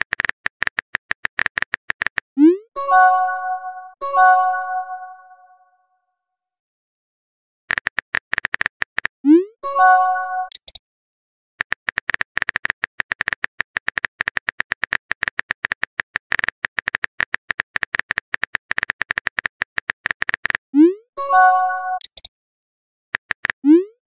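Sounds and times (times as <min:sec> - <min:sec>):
chat message swoop and chime: 0:02.4 - 0:05.6, 0:09.6 - 0:10.5, 0:20.9 - 0:22.0
keyboard typing clicks: 0:07.7 - 0:09.1, 0:10.4 - 0:10.8, 0:11.6 - 0:20.6, 0:21.4 - 0:22.3, 0:23.2 - 0:23.8.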